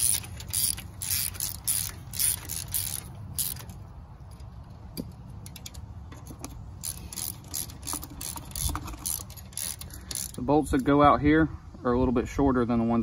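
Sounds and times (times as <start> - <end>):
ratchet wrench clicking: 0.0 - 10.9.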